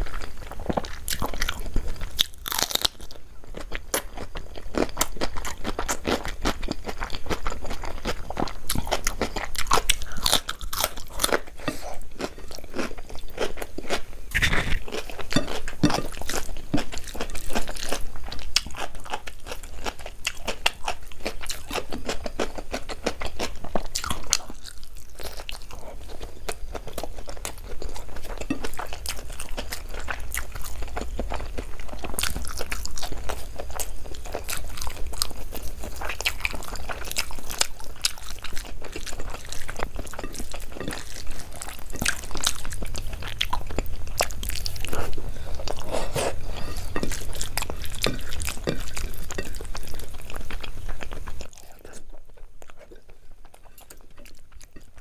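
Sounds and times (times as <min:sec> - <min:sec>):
person chewing crunchy food: 0:00.0 - 0:55.0
steady low hum: 0:27.4 - 0:55.0.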